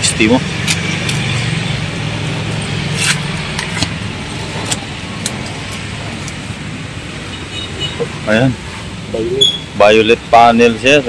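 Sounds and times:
street noise: 0:00.0 - 0:11.0
vehicle engine humming: 0:00.0 - 0:11.0.

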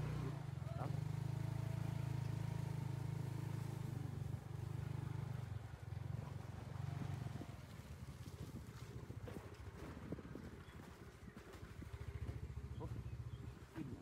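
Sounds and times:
engine droning: 0:00.0 - 0:10.2.

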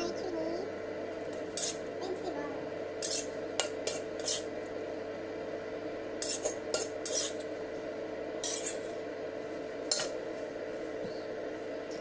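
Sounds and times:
steady hum: 0:00.0 - 0:12.0
metal spatula scraping a wok: 0:01.5 - 0:01.8, 0:03.0 - 0:04.5, 0:06.2 - 0:07.4, 0:08.4 - 0:09.0, 0:09.8 - 0:10.2.

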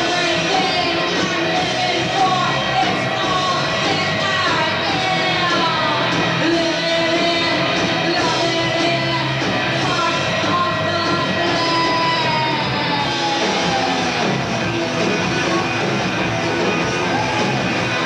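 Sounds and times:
woman singing: 0:00.0 - 0:13.8
live rock band playing: 0:00.0 - 0:18.0.

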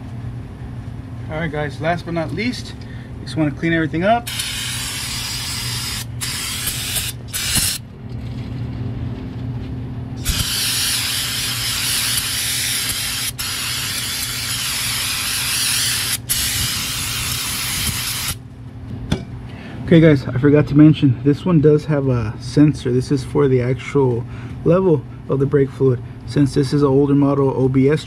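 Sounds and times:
steady low hum: 0:00.0 - 0:28.0
aerosol spray hissing: 0:04.3 - 0:07.8, 0:10.2 - 0:18.4.

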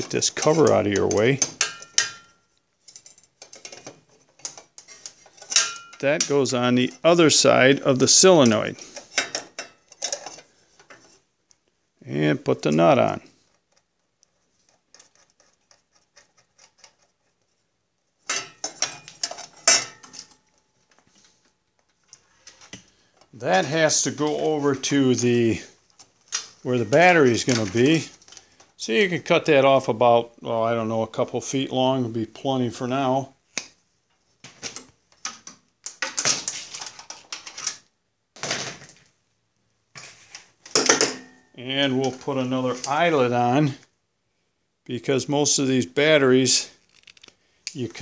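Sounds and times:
wire rustling and clicking scrapes: 0:00.0 - 0:07.2, 0:13.3 - 0:17.7, 0:46.7 - 0:47.9
wires clattering against metal: 0:00.0 - 0:11.2, 0:18.2 - 0:28.4.

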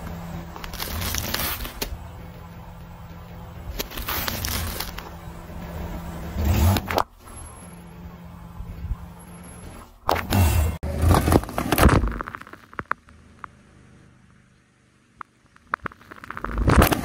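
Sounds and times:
steady low hum: 0:00.0 - 0:17.0
tyre crushing plastic containers: 0:00.5 - 0:01.9, 0:03.7 - 0:05.2, 0:10.1 - 0:12.9.

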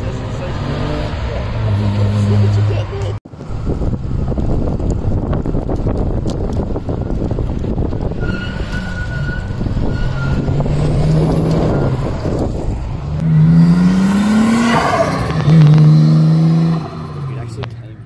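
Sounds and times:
car engine pulling away: 0:00.0 - 0:17.9
car engine: 0:00.0 - 0:18.0
rushing wind-like noise: 0:03.3 - 0:15.8.

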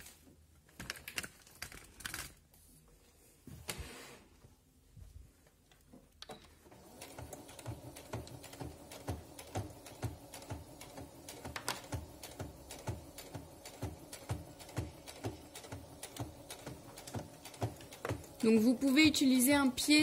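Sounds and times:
sewing machine motor hum: 0:06.7 - 0:20.0
sewing machine needle knocking: 0:07.0 - 0:19.8.

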